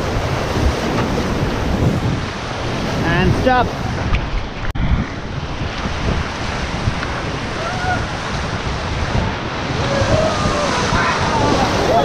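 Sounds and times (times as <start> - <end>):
wind buffeting microphone: 0.0 - 12.0
rushing whitewater: 5.1 - 12.0.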